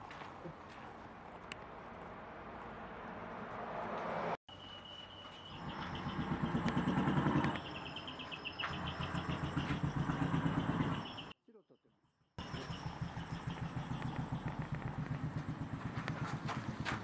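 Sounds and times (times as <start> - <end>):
engine rumbling: 5.5 - 11.4, 12.4 - 17.0.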